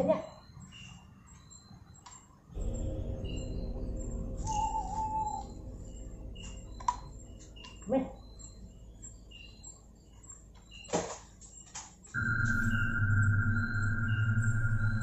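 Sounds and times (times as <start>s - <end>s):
low rumble: 2.6s - 10.0s, 12.2s - 15.0s.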